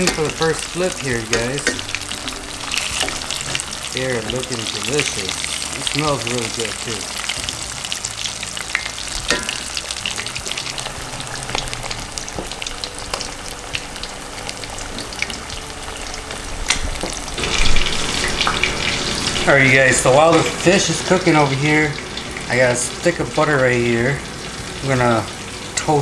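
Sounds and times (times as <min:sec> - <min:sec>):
fish deep-frying in oil: 0:00.0 - 0:26.0.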